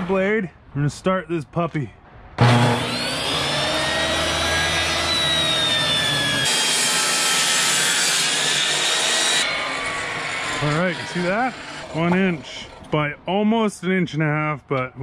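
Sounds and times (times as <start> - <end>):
table saw ripping a board: 2.4 - 12.9.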